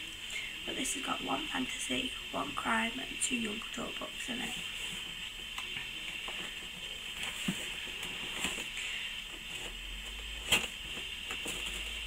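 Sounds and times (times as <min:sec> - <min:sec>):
steady background hiss: 0:00.0 - 0:12.0
cardboard box rustling: 0:06.3 - 0:12.0.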